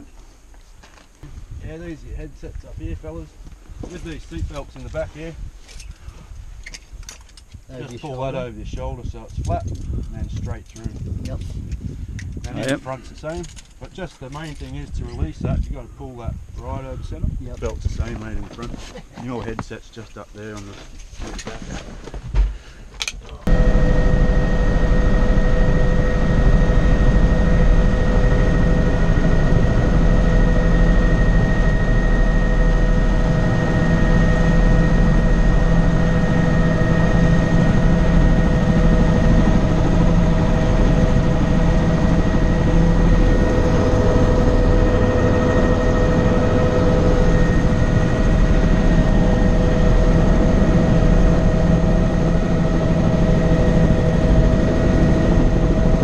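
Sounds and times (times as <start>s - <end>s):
helicopter engine and rotor: 12.2s - 15.9s, 23.4s - 56.0s.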